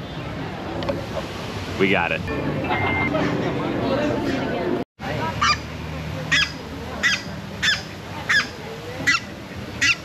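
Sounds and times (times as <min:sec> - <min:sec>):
waterfowl honking: 0:06.3 - 0:10.0.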